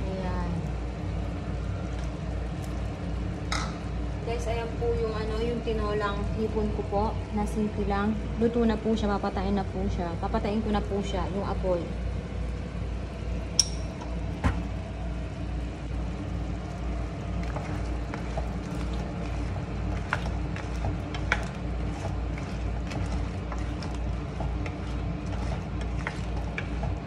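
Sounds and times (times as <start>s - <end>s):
low mechanical hum: 0.0s - 27.0s
spatula stirring in frying pan: 16.2s - 27.0s.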